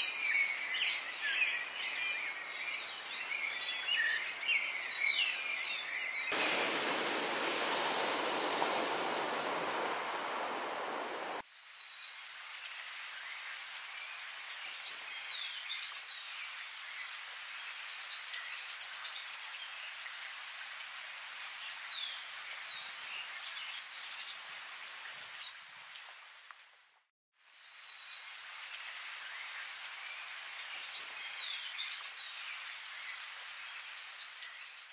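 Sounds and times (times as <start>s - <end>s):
rushing water noise: 6.2s - 26.4s.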